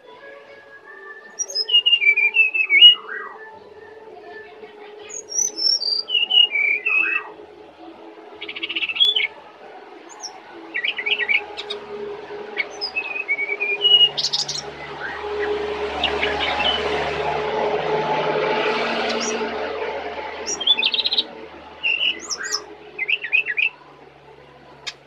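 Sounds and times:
bird singing whistled phrases: 0.8 - 4.0, 5.1 - 7.3, 8.5 - 9.3, 12.6 - 15.2, 21.8 - 23.7.

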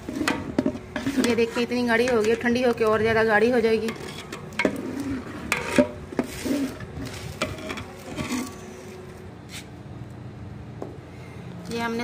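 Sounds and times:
metal spoon scraping steel pot: 0.0 - 9.0.

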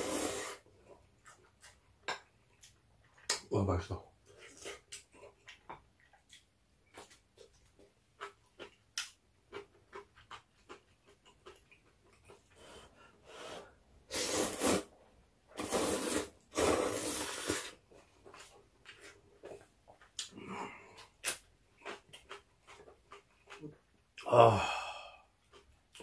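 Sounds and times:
person slurping noodles: 0.0 - 0.6, 13.2 - 14.9, 15.6 - 17.8.

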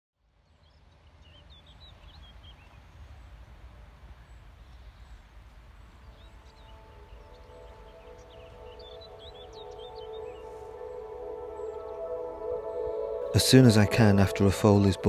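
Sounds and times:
soft sustained music tones: 0.3 - 15.0
small birds singing: 0.4 - 15.0.

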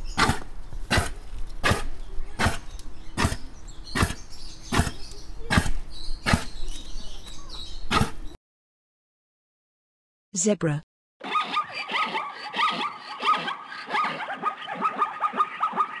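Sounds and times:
reindeer grunting: 0.1 - 6.6, 11.3 - 15.8.

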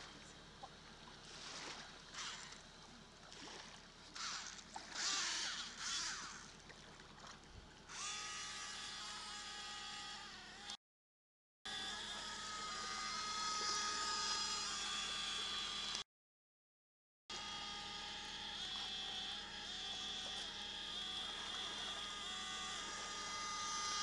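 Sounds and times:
model boat motor whining: 1.2 - 2.9, 4.0 - 6.7, 7.8 - 10.8, 11.7 - 16.0, 17.3 - 24.0.

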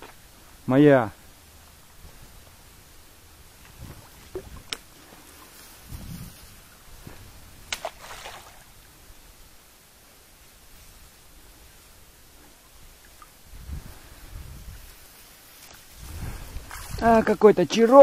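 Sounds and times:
water splashing: 3.4 - 9.0.

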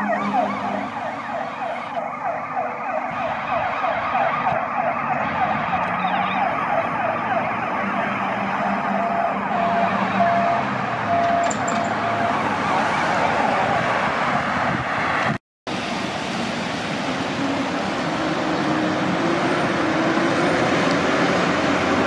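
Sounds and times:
fire truck siren yelping: 0.0 - 15.0.

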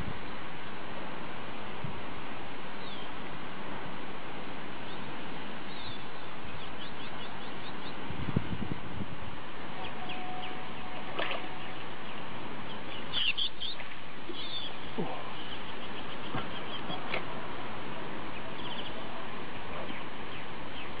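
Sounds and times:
steady hiss: 0.0 - 21.0
bird trill: 9.8 - 17.1, 18.3 - 19.2
bird chirps and whistles: 12.7 - 14.8.

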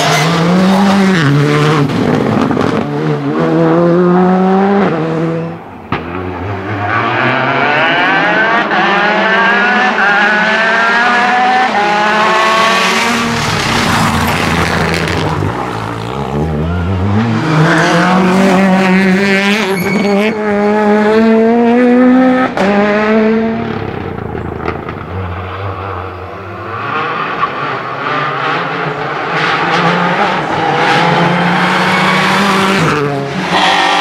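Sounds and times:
rally car engines revving hard: 0.0 - 34.0.

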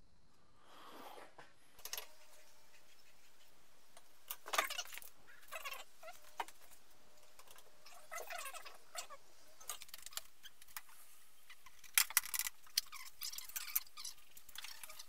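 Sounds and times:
metal parts and tools rattling: 11.6 - 15.0.

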